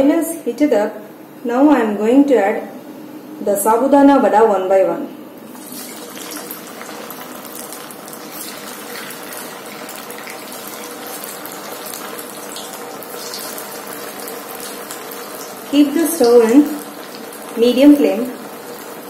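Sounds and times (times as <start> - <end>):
food deep-frying in oil: 5.4 - 19.0.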